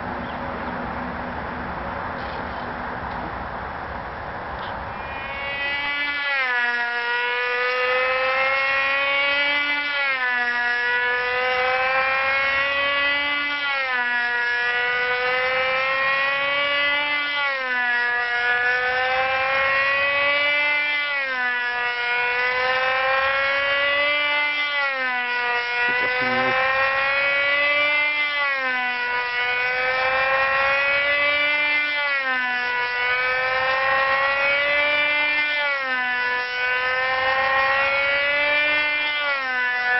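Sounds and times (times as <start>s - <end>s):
model airplane engine buzzing: 4.8s - 9.9s, 25.5s - 27.6s.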